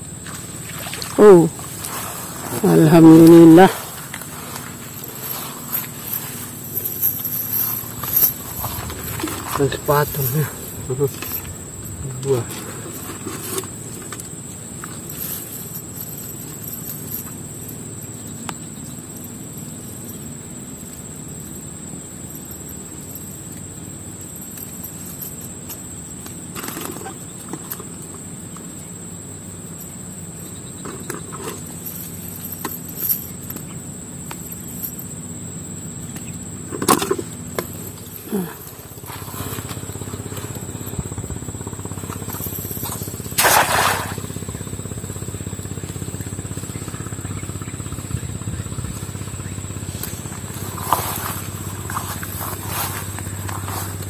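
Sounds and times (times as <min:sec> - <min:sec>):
high-pitched insect drone: 0:00.0 - 0:54.0
low rumble: 0:03.8 - 0:14.0, 0:38.8 - 0:43.3.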